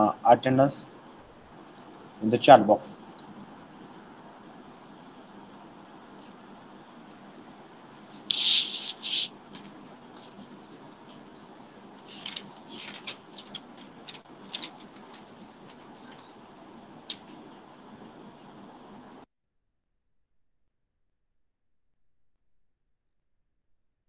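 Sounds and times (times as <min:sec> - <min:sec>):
faint steady hiss: 0:00.0 - 0:19.2
rustling: 0:08.2 - 0:11.3, 0:12.0 - 0:16.4.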